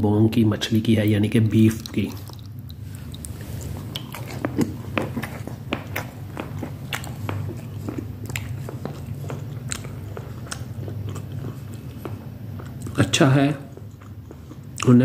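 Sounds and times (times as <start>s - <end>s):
person chewing: 1.1s - 15.0s
wet mouth clicks and smacks: 1.7s - 13.0s.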